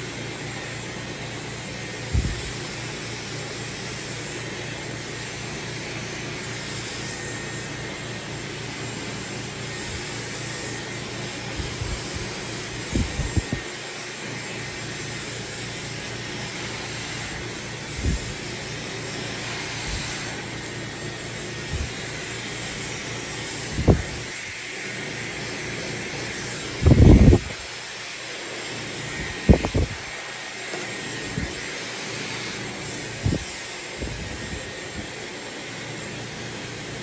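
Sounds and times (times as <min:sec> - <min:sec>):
hair dryer blowing: 0:00.0 - 0:37.0.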